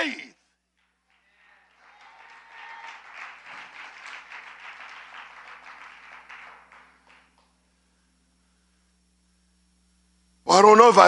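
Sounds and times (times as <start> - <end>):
crowd applauding: 0.8 - 7.6.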